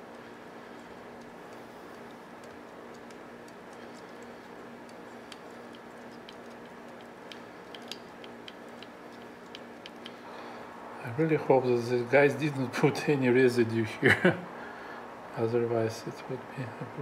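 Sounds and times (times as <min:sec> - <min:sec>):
light clicks and taps of parts: 0:00.0 - 0:10.2
steady background hum: 0:00.0 - 0:17.0.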